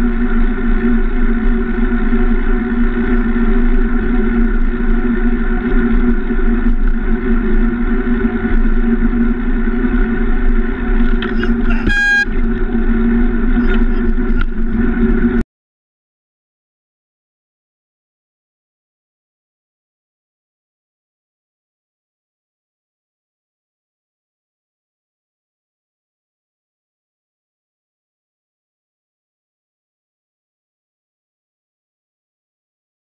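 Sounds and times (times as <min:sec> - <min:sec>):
wind and road noise: 0:00.0 - 0:15.4
short high beep: 0:11.7 - 0:12.4.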